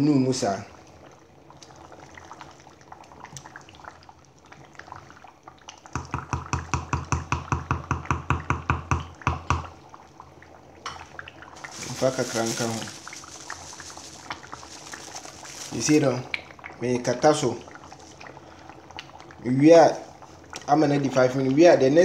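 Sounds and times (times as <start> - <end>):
sauce bubbling: 0.4 - 21.6
wooden spoon stirring in metal pot: 11.5 - 16.4, 17.5 - 18.5.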